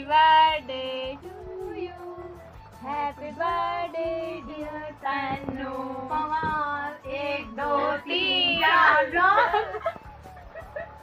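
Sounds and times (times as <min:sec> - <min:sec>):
instrumental backing: 0:00.0 - 0:11.0
high child-like singing: 0:05.2 - 0:09.4.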